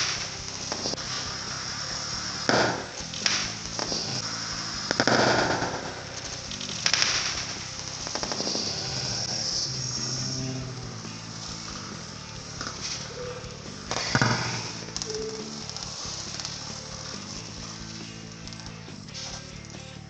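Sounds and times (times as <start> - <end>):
sharp bangs: 0.0 - 19.5
fizzing crackling hiss: 0.0 - 19.8.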